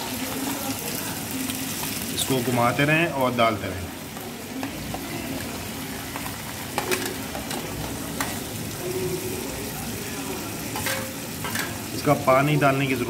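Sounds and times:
onions sizzling in oil: 0.0 - 13.0
spatula clinking on plate: 10.8 - 11.8.

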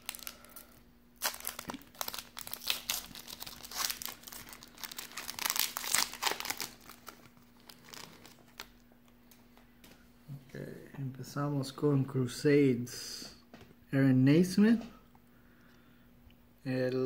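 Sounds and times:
plastic wrapper crinkling and tearing: 0.0 - 9.2
faint steady hum: 0.0 - 17.0.

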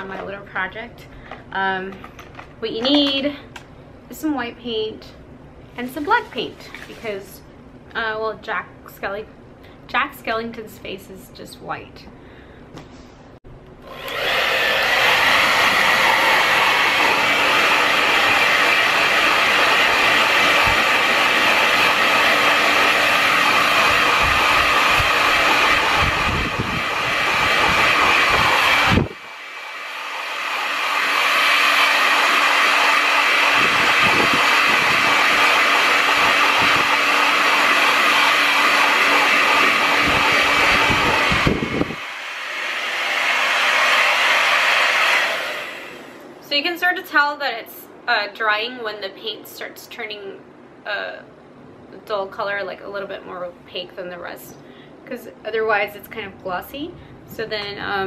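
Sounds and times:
hair dryer blowing: 13.8 - 46.3.

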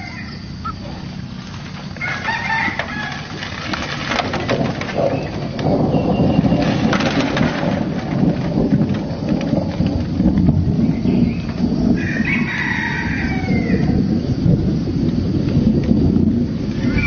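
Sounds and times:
bird calls: 0.0 - 1.3, 5.1 - 7.3, 10.7 - 11.7
low rumbling noise: 0.0 - 17.0.

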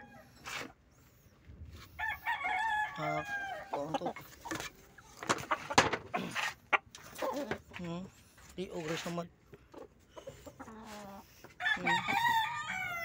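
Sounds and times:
rooster crowing: 0.0 - 0.4, 2.0 - 3.8, 11.6 - 13.0.

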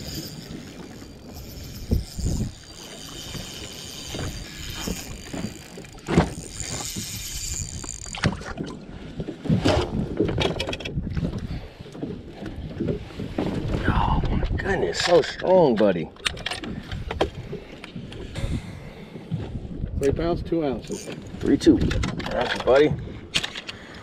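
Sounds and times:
fishing reel cranking: 0.0 - 8.4, 20.8 - 21.3
water noise: 0.0 - 24.0
wind: 0.0 - 24.0.

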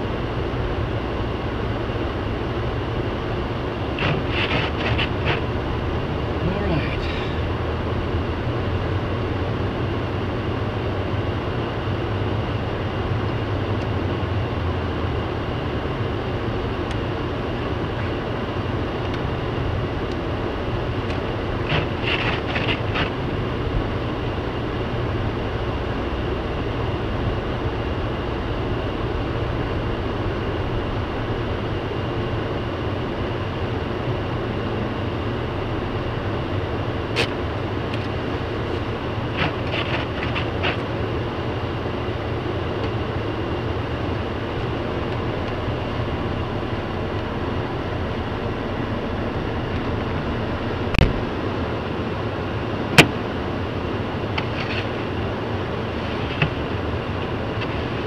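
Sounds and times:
car engine and tyres in snow: 0.0 - 58.0
heater fan blowing: 0.0 - 58.0.

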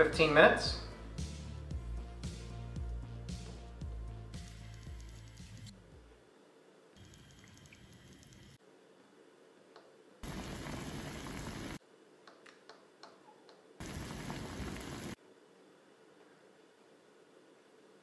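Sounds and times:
pot boiling with bubbling hiss: 7.0 - 8.6, 10.2 - 11.8, 13.8 - 15.2.

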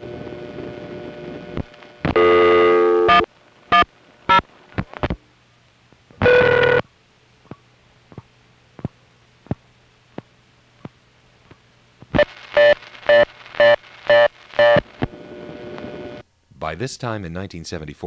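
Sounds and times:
low line hum: 0.0 - 16.6
brief loud telephone tone: 2.1 - 3.8, 6.2 - 6.8
pulsing loud tone: 2.1 - 4.4, 6.2 - 6.8.

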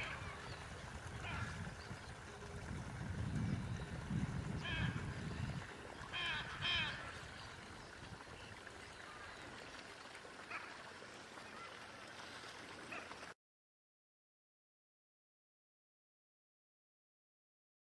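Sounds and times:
macaws honking calls: 1.1 - 1.7, 4.6 - 7.4.

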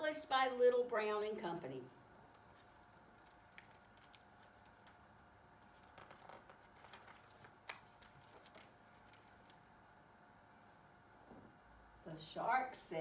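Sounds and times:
paper pages turning: 2.3 - 9.7.

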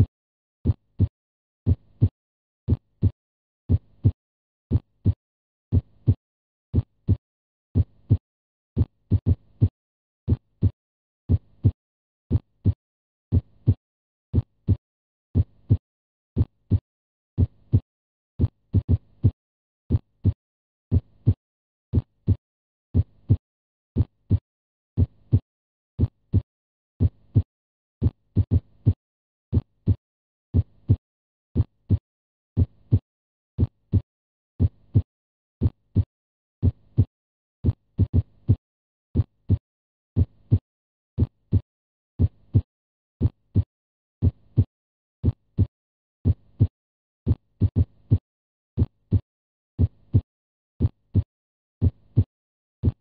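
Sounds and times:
heartbeat double thump: 2.7 - 7.2, 10.3 - 14.8, 34.6 - 38.6, 39.2 - 39.6, 41.2 - 41.6, 42.2 - 46.7, 49.8 - 53.0.

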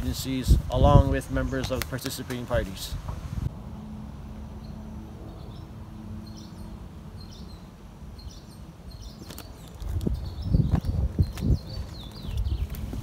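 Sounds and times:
footsteps on the ground: 9.1 - 13.0.

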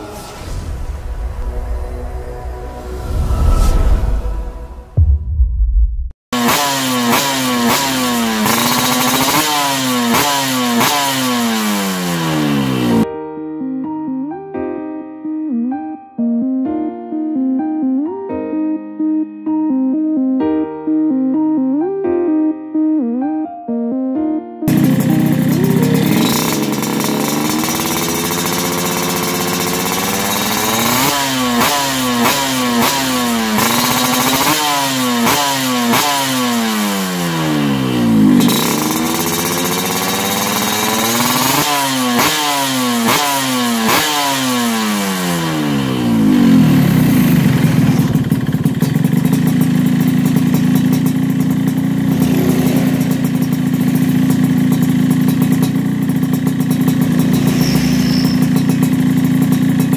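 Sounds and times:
motorcycle engine revving and idling: 6.4 - 13.1, 24.7 - 59.9.

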